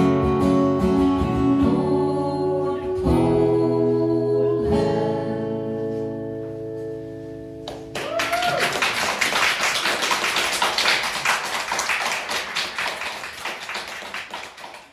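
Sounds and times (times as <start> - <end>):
audience applauding: 7.7 - 14.9
person whooping: 8.0 - 9.0.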